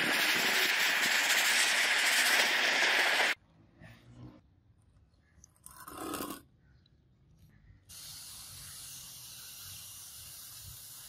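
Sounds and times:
spray nozzle hissing: 7.9 - 11.0.

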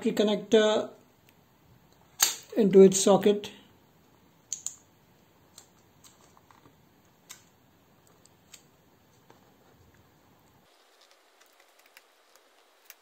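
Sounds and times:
small plastic clicks and taps: 4.5 - 4.8.

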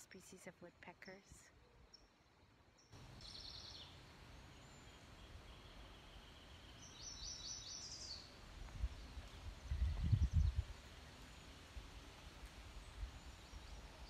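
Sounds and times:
songbirds trilling: 2.8 - 8.4.

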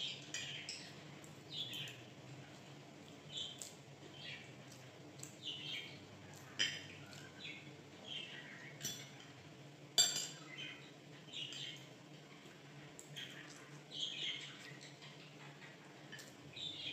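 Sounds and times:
bird chirping: 0.0 - 2.0, 5.4 - 6.1, 6.7 - 8.9, 10.3 - 11.9, 13.1 - 15.8, 16.5 - 16.9
cutlery clinking on plate: 8.8 - 9.4, 10.0 - 10.4.

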